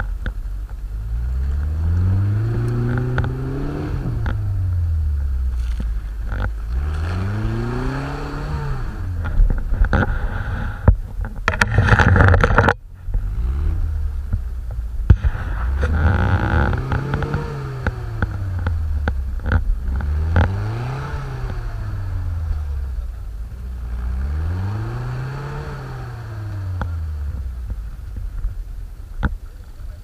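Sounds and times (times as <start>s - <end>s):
off-road vehicle engine revving: 0.0s - 30.0s
tyres scraping through snow: 5.2s - 12.6s, 15.1s - 19.0s.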